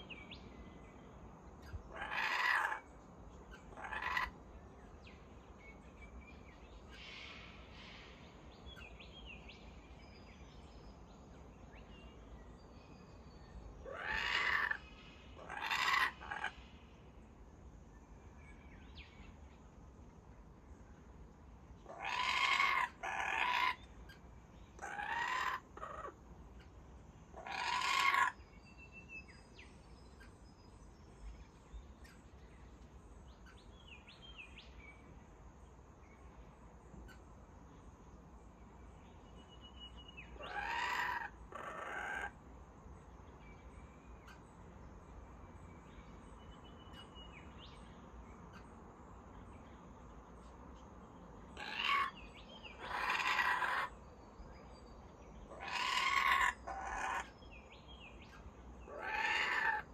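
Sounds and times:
kookaburras laughing calls: 1.9s - 2.8s, 3.7s - 4.3s, 13.9s - 14.8s, 15.4s - 16.5s, 21.9s - 23.8s, 24.8s - 26.2s, 27.4s - 28.4s, 40.4s - 42.3s, 51.6s - 52.2s, 52.8s - 54.0s, 55.5s - 57.3s, 58.9s - 59.9s
small birds chirping: 21.8s - 35.3s, 42.9s - 59.9s.

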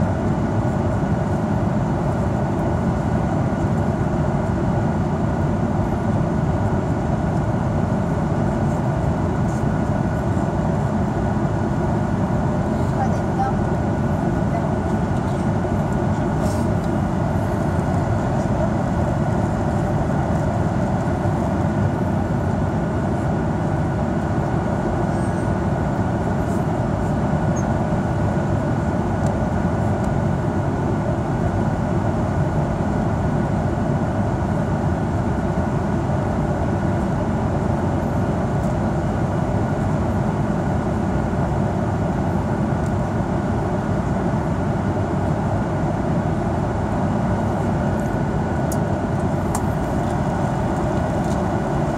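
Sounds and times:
faint steady whine: 0.0s - 51.9s
airplane cabin rushing noise: 47.5s - 51.9s.

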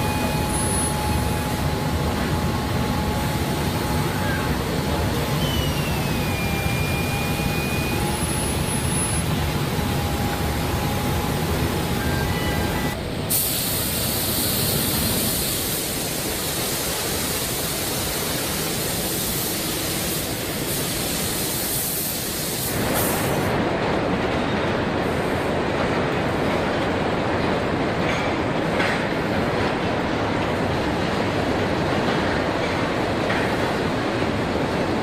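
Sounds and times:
conveyor line rumble: 0.0s - 35.0s
spray guns hissing: 13.3s - 18.0s.

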